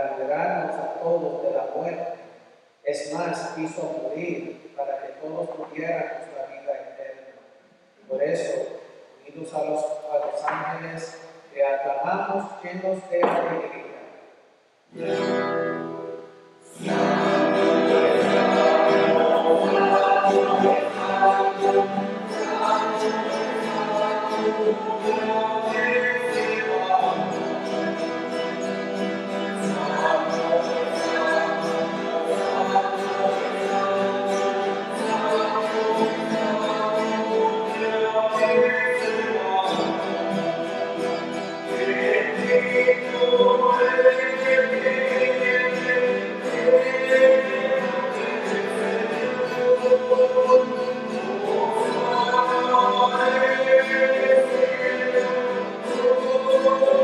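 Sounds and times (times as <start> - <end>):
strummed acoustic guitar: 14.9 - 57.0
group singing a hymn: 16.7 - 57.0.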